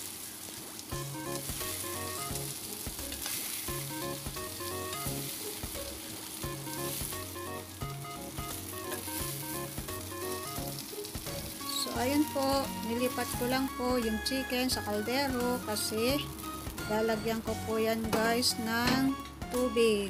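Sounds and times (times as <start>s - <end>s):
chicken sizzling in hot oil: 0.0s - 19.6s
background music with bass line: 1.0s - 20.0s.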